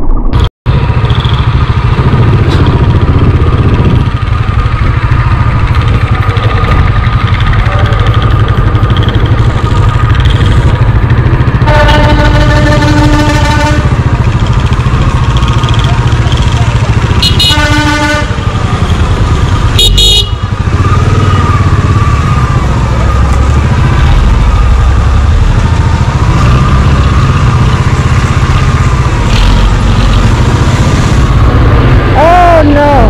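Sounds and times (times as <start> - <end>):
motorcycle engine running: 0.7 - 33.0
vehicle horn honking: 11.6 - 14.1, 17.1 - 18.5, 19.8 - 20.5.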